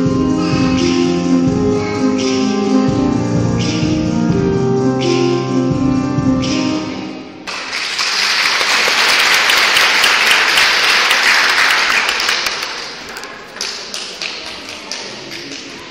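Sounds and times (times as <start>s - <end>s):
audience applauding: 7.5s - 15.9s.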